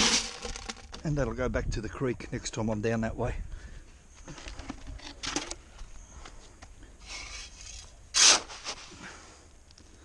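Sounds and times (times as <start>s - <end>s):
loud clatter: 0.0s - 1.0s
bucket being handled: 0.0s - 1.2s, 4.2s - 5.6s
gravel scraping: 0.0s - 1.5s.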